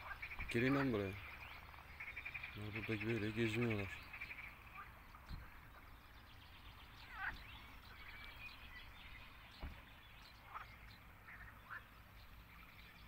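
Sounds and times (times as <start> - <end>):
faint animal calls: 2.0 - 5.9, 7.0 - 8.2, 10.4 - 12.0
soft thump: 9.6 - 9.9.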